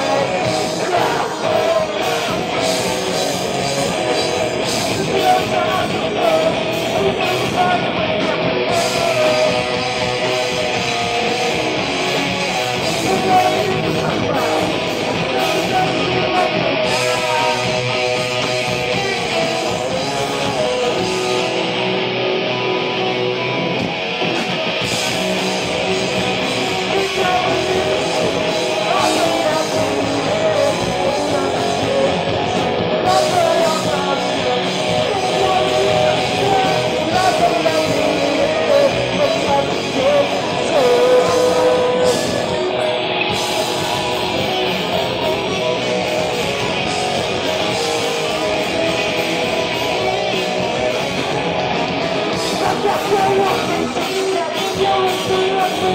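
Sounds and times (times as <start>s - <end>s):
person singing: 0.0s - 11.2s, 12.0s - 21.9s, 25.7s - 43.8s, 51.9s - 55.9s
bass guitar: 0.0s - 55.9s
distorted electric guitars: 0.0s - 55.9s
drum kit: 0.0s - 55.9s.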